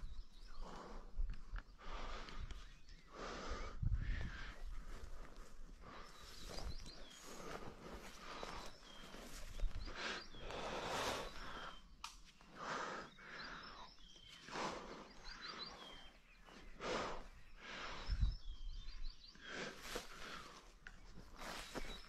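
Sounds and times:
small birds chirping: 0.0s - 22.0s
footsteps swishing through tall grass: 21.2s - 22.0s.

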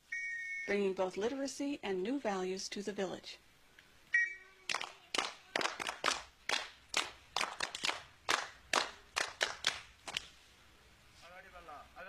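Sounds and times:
children clapping in rhythm: 4.7s - 10.3s.

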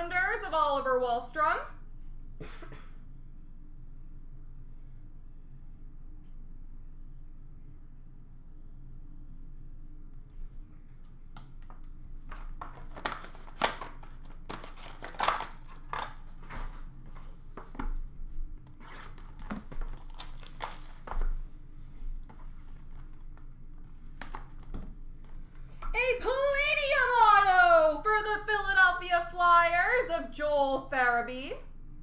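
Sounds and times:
foil wrappers crinkling and tearing: 12.4s - 16.9s, 18.8s - 21.4s.

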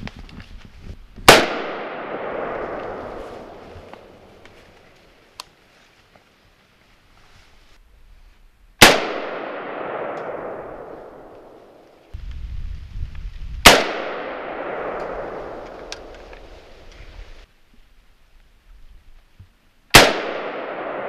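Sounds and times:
rifle shots with echo: 1.2s - 4.3s, 8.8s - 11.8s, 13.6s - 16.1s, 19.9s - 21.0s.

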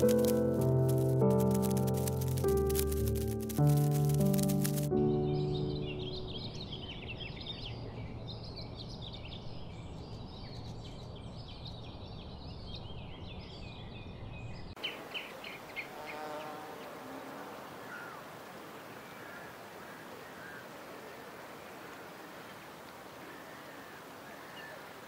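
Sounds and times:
bee buzzing: 0.0s - 4.9s, 15.8s - 17.6s
birds chirping: 3.7s - 25.0s.

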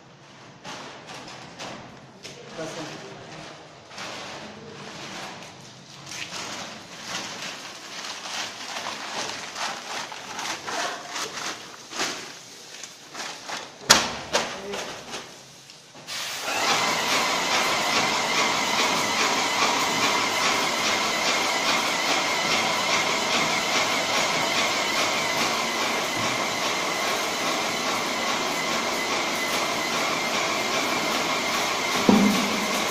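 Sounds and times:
paint sprayer hissing: 16.1s - 17.7s, 27.0s - 32.9s.

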